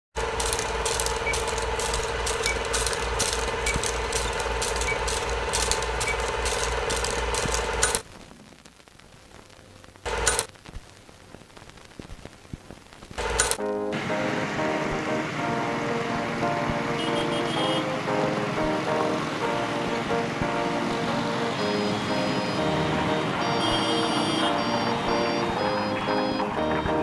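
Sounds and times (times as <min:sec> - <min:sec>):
film projector clattering: 0:00.2 - 0:08.0.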